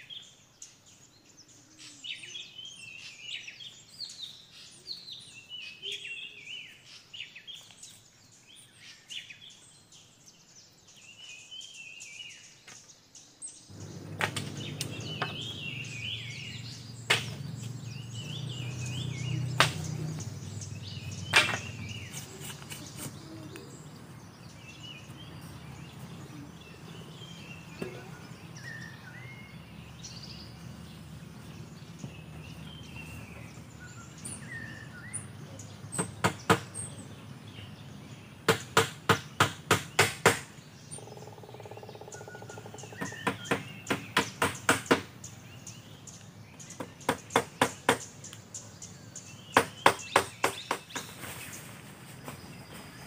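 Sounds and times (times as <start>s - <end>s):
birds chirping: 0.0s - 53.0s
tools knocking on bamboo: 14.1s - 15.6s, 17.1s - 17.5s, 21.3s - 21.9s, 36.0s - 36.7s, 38.5s - 40.5s, 42.9s - 45.1s, 46.8s - 48.1s, 49.6s - 51.1s.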